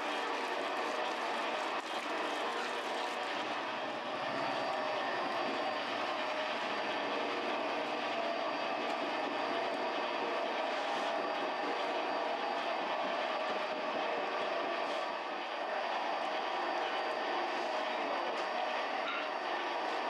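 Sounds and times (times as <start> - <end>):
dough mixer running: 0.0 - 20.0.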